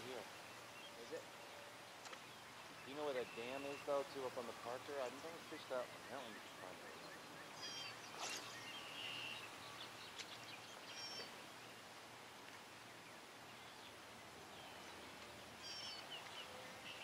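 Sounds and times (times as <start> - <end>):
faint steady hiss: 0.0 - 17.0
whistled bird calls: 2.8 - 4.0, 5.9 - 11.3, 15.6 - 17.0.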